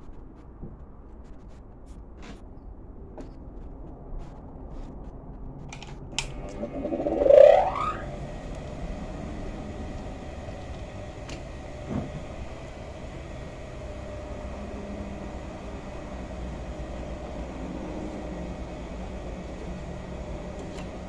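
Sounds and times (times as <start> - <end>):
loud rising whir: 6.2 - 21.0.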